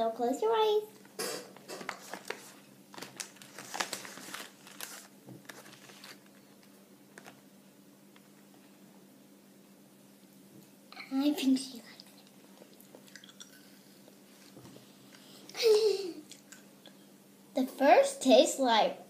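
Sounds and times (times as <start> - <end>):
faint steady hum: 0.0 - 19.0
plastic packet crinkling: 1.6 - 7.4.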